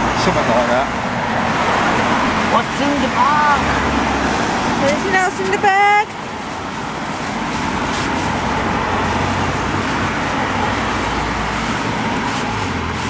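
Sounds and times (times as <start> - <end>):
road traffic roar: 0.0 - 13.0
wet plastic bag crinkling: 6.4 - 10.2.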